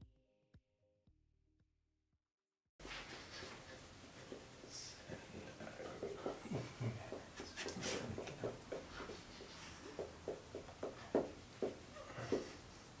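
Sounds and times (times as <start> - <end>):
hand rubbing dog fur: 2.8 - 9.9.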